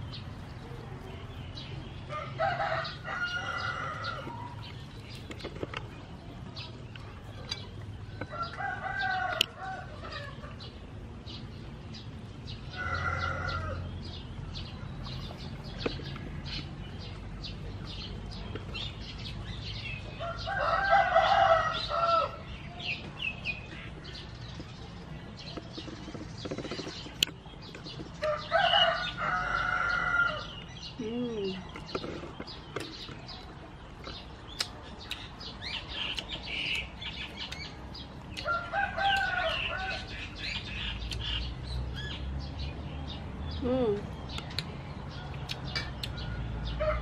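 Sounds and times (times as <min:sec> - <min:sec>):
small birds chirping: 0:00.0 - 0:47.0
rooster crowing: 0:02.1 - 0:04.6, 0:12.7 - 0:13.8, 0:20.2 - 0:22.4, 0:28.2 - 0:30.6, 0:38.4 - 0:40.2.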